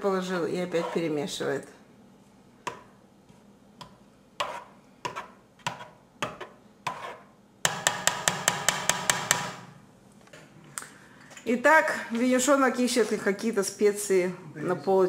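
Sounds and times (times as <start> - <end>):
spoon knocking against a pot: 7.6 - 9.7.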